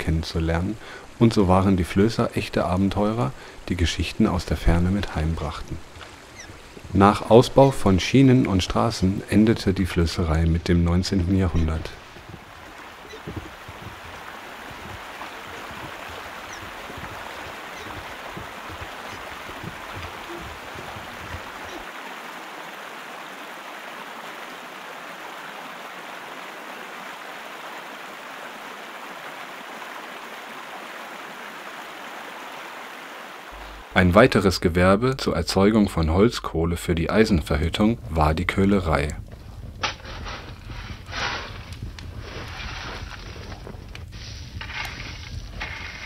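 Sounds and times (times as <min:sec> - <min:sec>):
river water rushing: 0:00.0 - 0:33.9.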